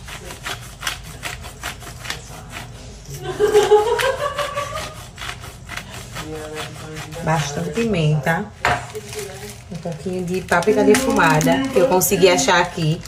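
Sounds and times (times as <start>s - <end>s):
person speaking: 6.0s - 13.0s.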